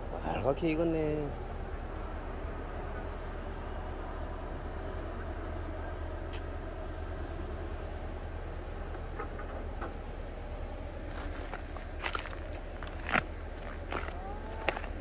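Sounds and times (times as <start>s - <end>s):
distant machinery engines drone: 0.0s - 15.0s
footsteps on dirt path: 11.0s - 15.0s.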